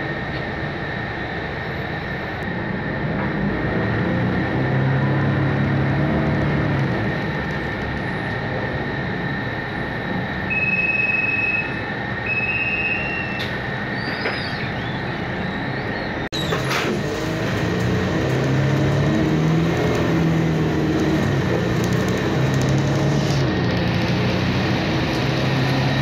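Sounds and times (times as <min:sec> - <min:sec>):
bus engine drone: 0:00.0 - 0:26.0
short electronic beeps: 0:10.5 - 0:13.4.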